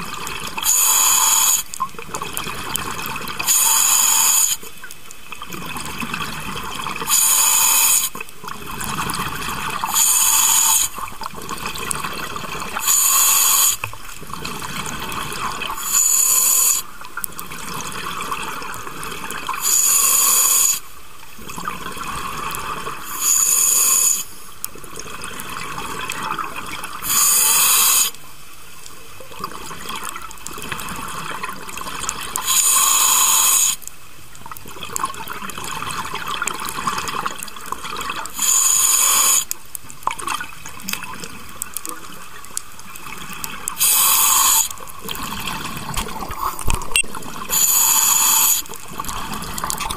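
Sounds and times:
exhaled bubbles gurgling: 0:00.0 - 0:28.1, 0:34.4 - 0:49.9
regulator inhalation hiss: 0:00.6 - 0:01.8, 0:03.4 - 0:04.7, 0:07.1 - 0:08.2, 0:09.9 - 0:11.1, 0:12.8 - 0:14.0, 0:15.8 - 0:17.0, 0:19.6 - 0:21.0, 0:23.0 - 0:24.5, 0:27.0 - 0:28.2, 0:32.4 - 0:33.9, 0:38.3 - 0:39.6, 0:43.8 - 0:44.9, 0:47.5 - 0:49.3.

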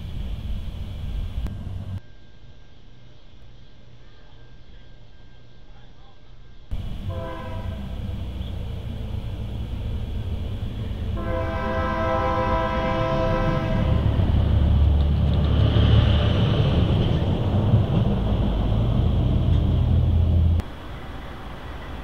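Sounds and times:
approaching train rumble: 0:00.0 - 0:02.3, 0:03.2 - 0:22.0
locomotive air horn: 0:06.8 - 0:08.4, 0:11.1 - 0:14.3.

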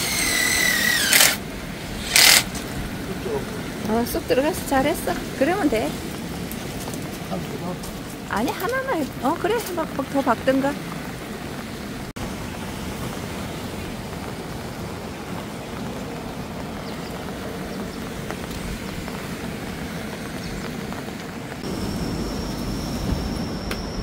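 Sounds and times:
rain: 0:00.0 - 0:24.0
thin high whine: 0:21.6 - 0:24.0.

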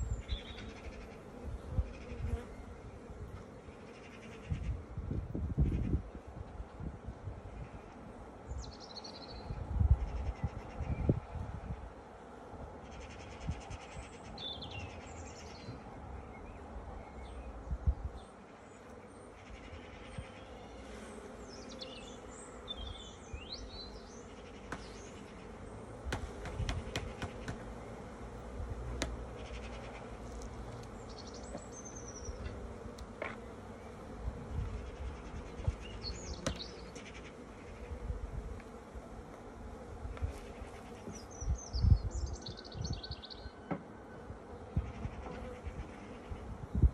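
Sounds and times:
honeybees buzzing: 0:14.2 - 0:42.2, 0:43.0 - 0:46.9
sharp clicks of hive frames: 0:24.5 - 0:25.3, 0:26.1 - 0:27.7, 0:28.9 - 0:31.7, 0:36.4 - 0:37.2.

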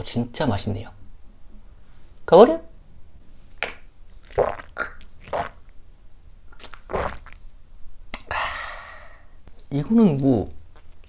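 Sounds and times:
man swallowing and breathing: 0:06.5 - 0:09.7
breathy exhale: 0:08.3 - 0:09.4.

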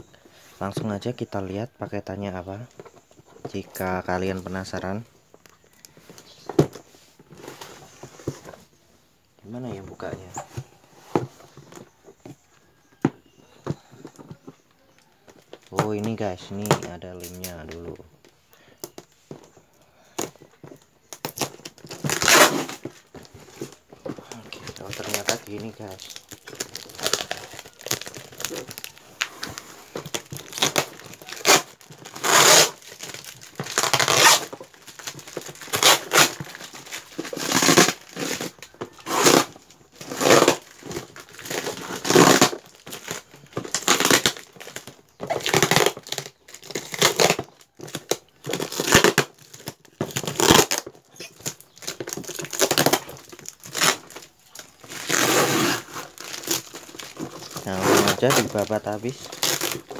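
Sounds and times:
plastic wrap crinkling: 0:02.1 - 0:08.8, 0:09.4 - 0:59.9
packing tape ripping: 0:21.1 - 0:59.9.

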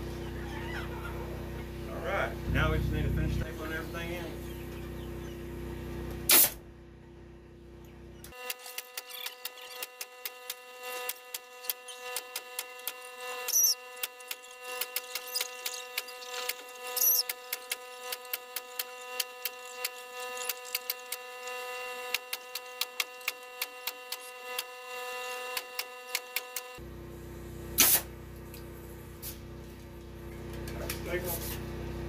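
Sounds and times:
steady hum: 0:01.2 - 0:08.3
pneumatic staple gun firing: 0:06.3 - 0:06.6, 0:08.3 - 0:21.2, 0:22.1 - 0:24.7, 0:25.5 - 0:26.8, 0:27.8 - 0:28.1.

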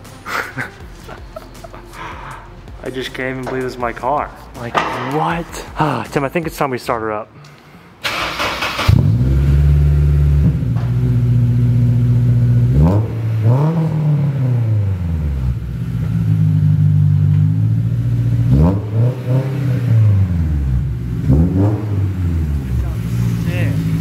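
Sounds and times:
car engine idling: 0:08.0 - 0:24.0
engine revving: 0:08.0 - 0:24.0.

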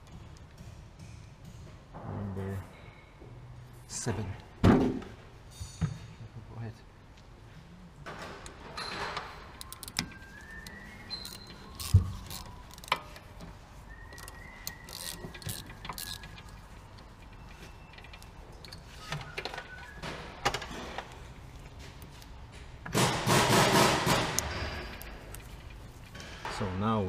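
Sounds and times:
thump: 0:04.6 - 0:05.1
metal clicks and clinks: 0:08.4 - 0:10.2
faint squeaks: 0:08.8 - 0:20.0.

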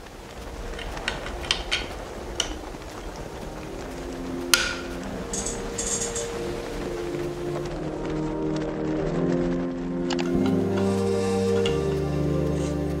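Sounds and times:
plastic parts clicking and knocking: 0:00.7 - 0:02.6.

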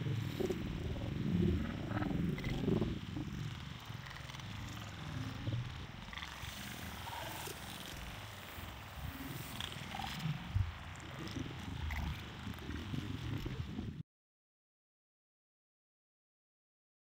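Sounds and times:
steady low rumble: 0:00.0 - 0:14.0.

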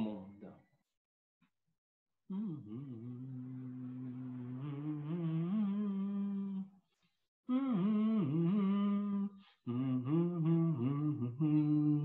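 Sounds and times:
man humming: 0:02.3 - 0:06.6, 0:07.5 - 0:12.0.

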